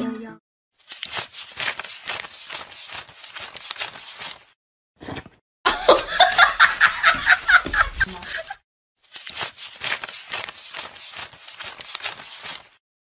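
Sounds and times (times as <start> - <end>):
person laughing: 5.7 - 8.6.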